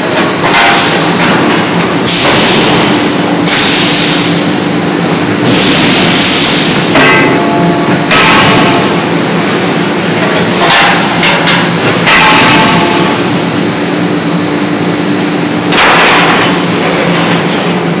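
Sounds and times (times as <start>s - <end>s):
machine hum with high whine: 0.0s - 18.0s
forging hammer blows: 5.4s - 9.2s, 10.2s - 14.3s.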